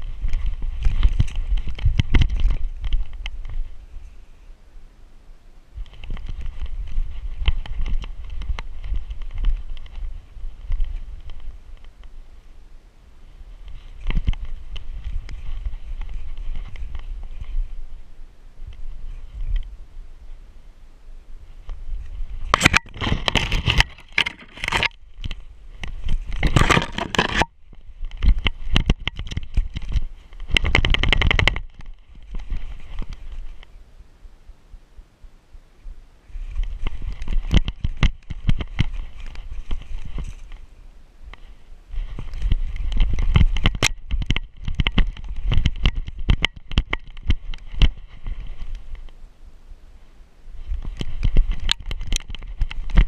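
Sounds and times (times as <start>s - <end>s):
low rumbling camera mount: 0.0s - 4.2s, 5.8s - 12.2s, 21.6s - 33.8s, 36.4s - 40.7s, 41.3s - 49.2s, 50.6s - 53.0s
twigs scraping: 0.0s - 4.3s, 13.2s - 19.7s, 21.4s - 33.8s, 36.2s - 49.2s.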